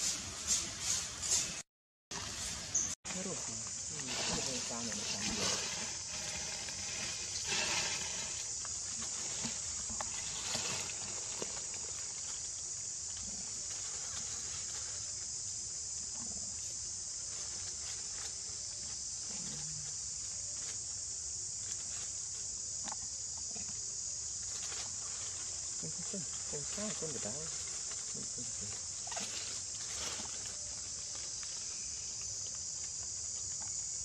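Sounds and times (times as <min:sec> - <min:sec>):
insect drone: 0:00.0 - 0:34.0
dry leaves rustling: 0:02.3 - 0:15.1, 0:24.5 - 0:33.5.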